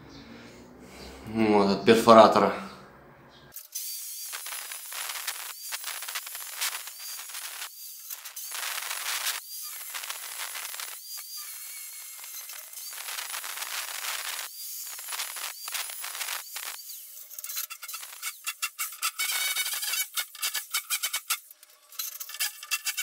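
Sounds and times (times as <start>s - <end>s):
power tool cutting masonry: 3.5s - 23.0s
high whine of power tool: 3.6s - 18.4s.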